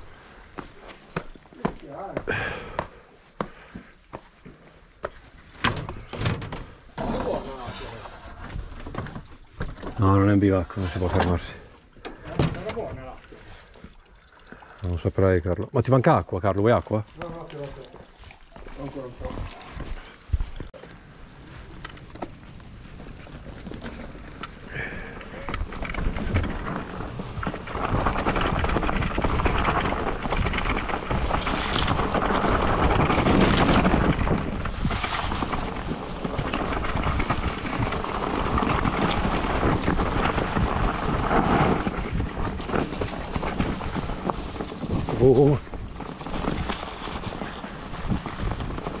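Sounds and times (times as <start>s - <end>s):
bike rattling: 0.0s - 49.0s
bike tyres crunching on stones: 0.0s - 49.0s
wind buffeting microphone: 21.6s - 49.0s.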